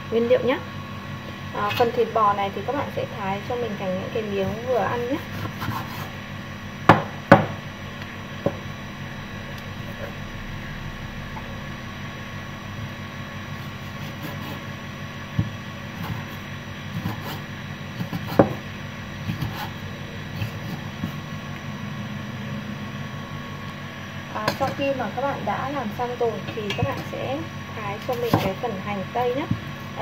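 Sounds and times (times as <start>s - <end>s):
steady hum: 0.0s - 30.0s
cleaver slicing meat: 5.0s - 6.1s, 13.6s - 14.7s, 15.5s - 18.6s.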